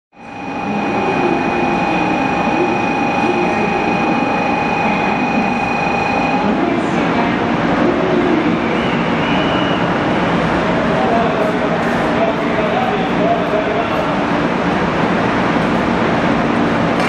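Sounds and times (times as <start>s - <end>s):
station platform murmur: 0.1s - 17.0s
electronic departure signal ringing: 0.2s - 6.6s.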